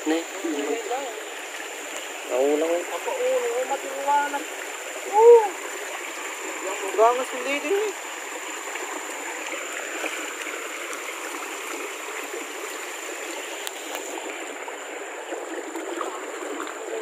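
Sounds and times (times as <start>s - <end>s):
river water flowing over rocks: 0.0s - 17.0s.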